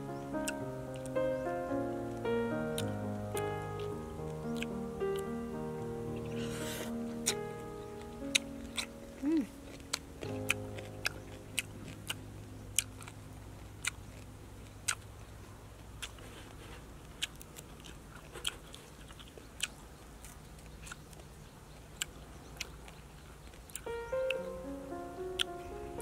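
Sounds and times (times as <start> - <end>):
soft background music: 0.0 - 14.0, 23.8 - 26.0
person chewing crunchy food: 2.7 - 5.3, 6.4 - 7.5, 8.1 - 15.2, 15.8 - 24.4.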